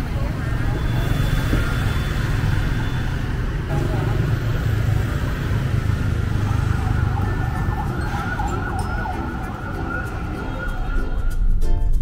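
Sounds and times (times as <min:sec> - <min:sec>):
street traffic rumble: 0:00.0 - 0:12.0
wavering siren-like tone: 0:06.3 - 0:11.3.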